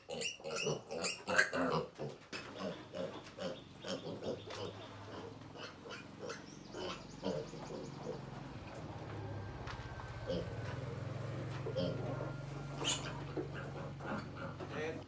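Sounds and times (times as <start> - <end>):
piglet squealing: 0.0 - 2.0, 12.8 - 14.6
piglet squealing grunts: 0.0 - 7.5, 12.8 - 14.6.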